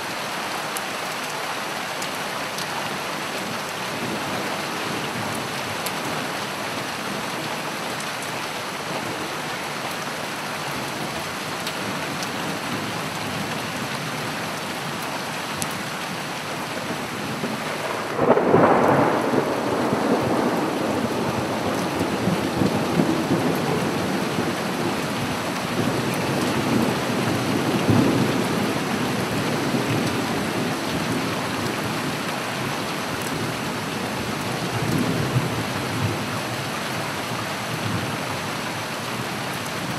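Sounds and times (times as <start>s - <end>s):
steady rain: 0.0s - 39.9s
thunder rumbling: 17.6s - 31.1s.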